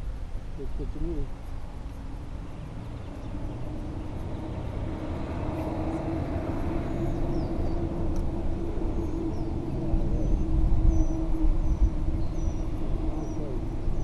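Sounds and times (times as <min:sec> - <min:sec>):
engine droning: 0:00.0 - 0:14.0
bird chirps: 0:02.4 - 0:04.2, 0:06.8 - 0:07.9, 0:08.9 - 0:14.0.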